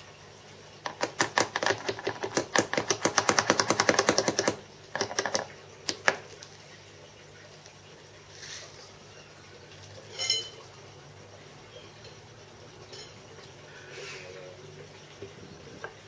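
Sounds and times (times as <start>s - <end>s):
rapid tapping on wood: 0.8s - 6.2s.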